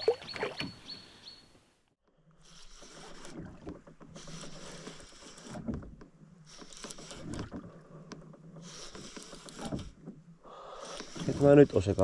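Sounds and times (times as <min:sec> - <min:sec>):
oars swishing through water: 0:00.0 - 0:01.0, 0:02.0 - 0:12.0.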